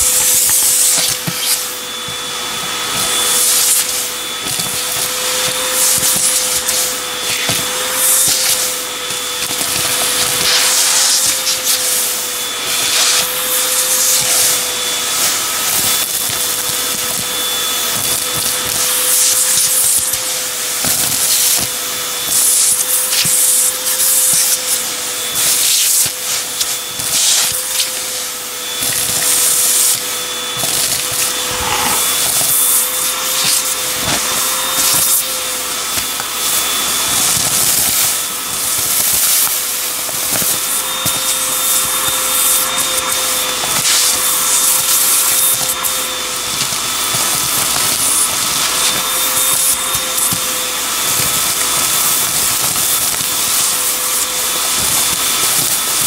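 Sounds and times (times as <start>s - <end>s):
vacuum cleaner motor whine: 0.0s - 56.0s.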